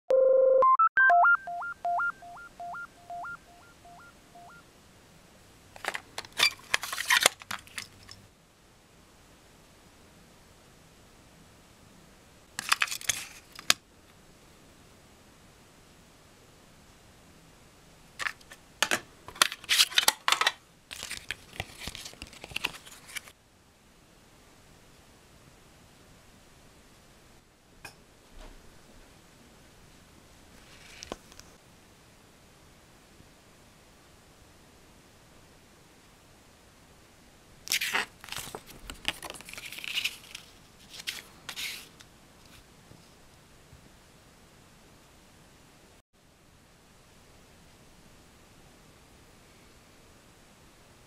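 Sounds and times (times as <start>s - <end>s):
electronic jingle beeping tones: 0.1s - 4.6s
paper crinkling and snapping: 5.8s - 8.2s, 19.3s - 23.3s, 37.7s - 42.0s
soft paper rustling: 20.9s - 23.4s, 30.6s - 31.6s, 37.7s - 43.2s.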